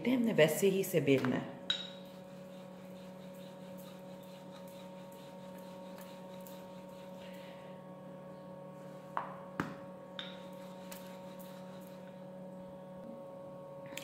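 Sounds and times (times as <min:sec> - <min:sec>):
steady electrical hum: 0:00.0 - 0:14.0
rolling pin rolling dough: 0:01.9 - 0:07.4, 0:08.9 - 0:12.3.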